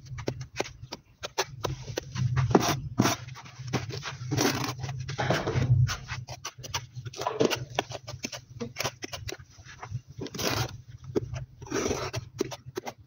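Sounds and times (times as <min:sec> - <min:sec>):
trowel scraping adhesive: 0:01.2 - 0:04.9, 0:10.2 - 0:13.0.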